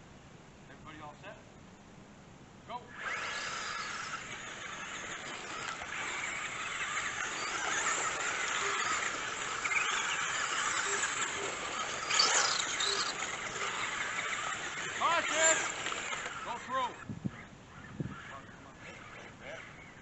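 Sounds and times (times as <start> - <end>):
rc car motors whining: 2.9 - 20.0
tyres on gravel: 3.0 - 17.1.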